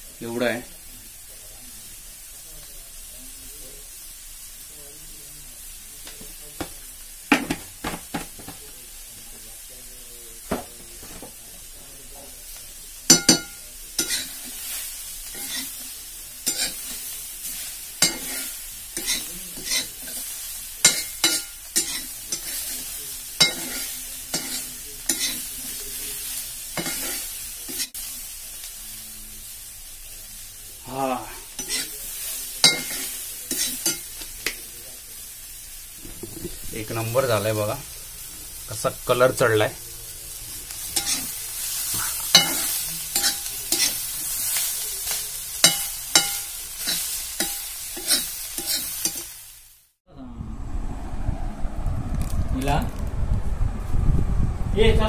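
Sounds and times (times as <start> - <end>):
prawns sizzling in a pan: 0.0 - 50.0
metal spatula scraping pan: 13.1 - 14.7, 15.3 - 15.8, 16.4 - 17.0, 18.0 - 25.8, 26.8 - 28.0, 31.5 - 31.9, 32.6 - 34.1, 40.8 - 49.3.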